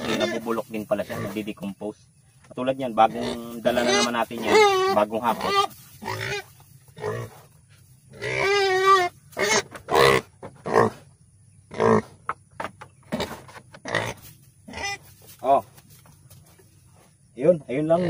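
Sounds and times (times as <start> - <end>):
pig grunting: 0.0 - 1.6, 2.9 - 7.5, 8.1 - 11.1, 11.7 - 12.2, 13.1 - 15.0.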